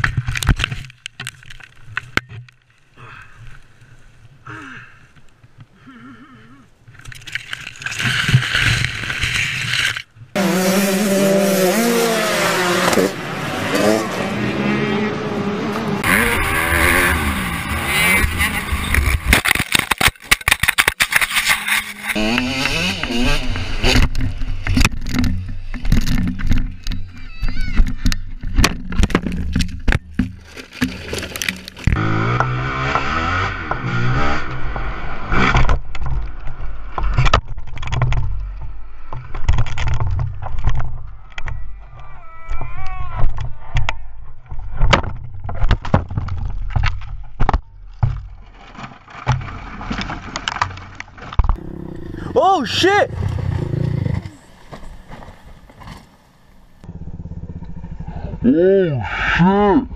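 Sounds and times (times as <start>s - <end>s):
dirt bike engine running: 10.4s - 19.3s, 53.1s - 55.7s, 56.4s - 58.7s
rustling of grass and twigs: 24.4s - 32.0s, 44.4s - 51.6s, 53.2s - 56.9s
crash knocks and scrapes: 44.6s - 51.6s
low rumble: 56.7s - 59.9s.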